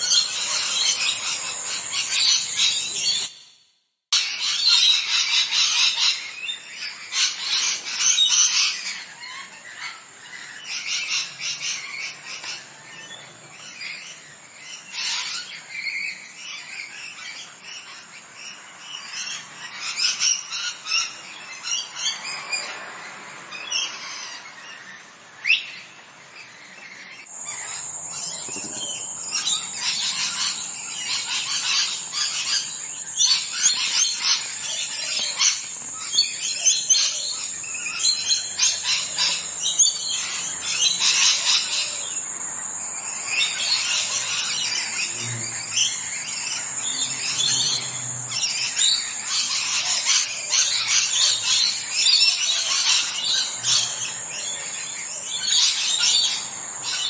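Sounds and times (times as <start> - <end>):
birds chirping: 0.0 - 57.0.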